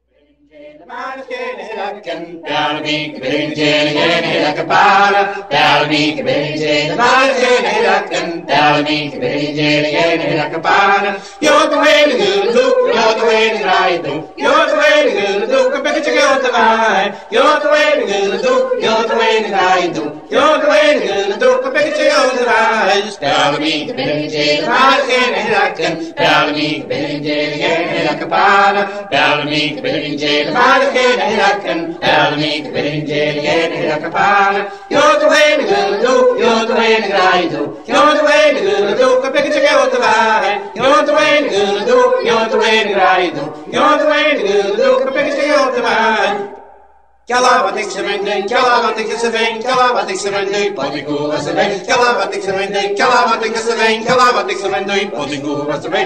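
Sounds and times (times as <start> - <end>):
person singing chant-like: 0.0 - 56.0.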